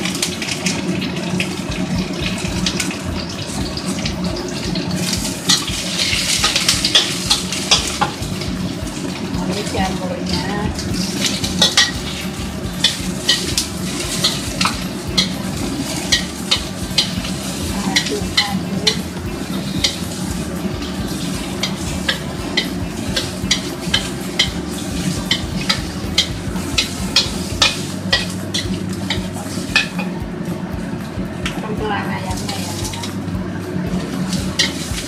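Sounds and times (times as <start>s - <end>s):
food sizzling: 0.0s - 35.0s
metal spatula scraping wok: 4.7s - 30.2s, 34.0s - 35.0s.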